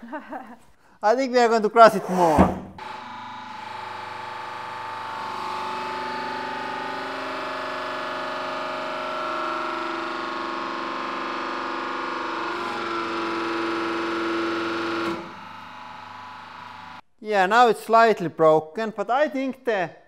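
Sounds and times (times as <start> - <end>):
hydraulic press pump whining: 1.9 - 17.0.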